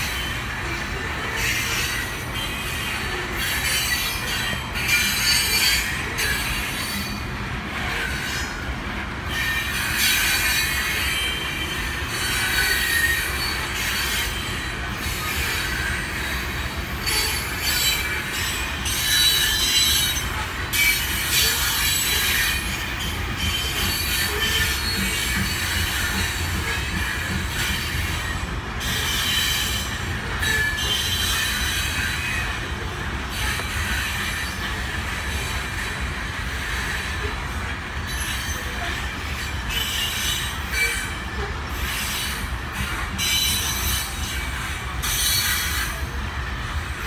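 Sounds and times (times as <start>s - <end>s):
high-pitched wheel squeal: 0.0s - 7.2s, 7.8s - 46.1s
train wheels rumbling on rail: 0.0s - 47.0s.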